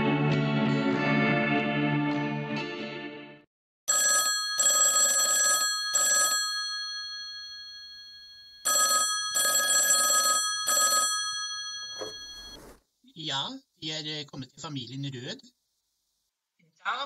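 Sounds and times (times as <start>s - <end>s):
telephone bell ringing: 3.9s - 12.8s.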